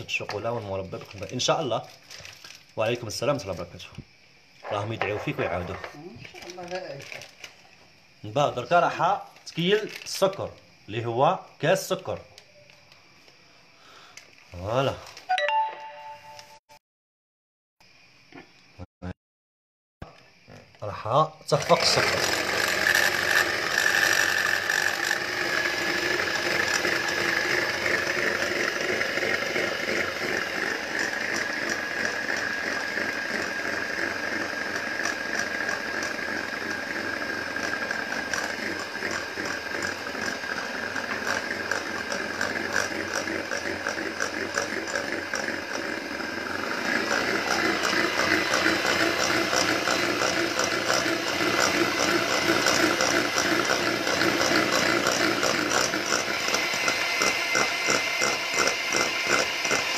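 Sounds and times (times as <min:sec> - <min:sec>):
electric hand mixer whisking: 0:21.5 - 0:59.9.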